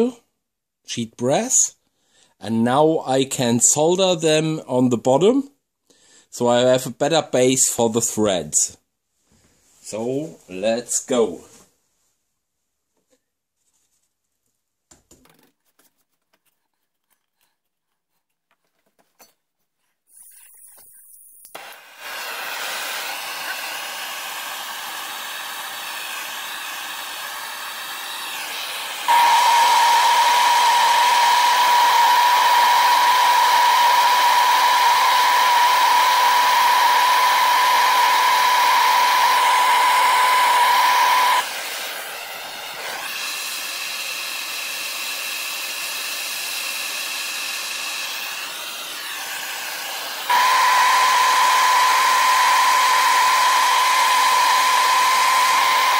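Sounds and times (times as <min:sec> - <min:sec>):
loud steady high tone: 0:29.1 - 0:35.7.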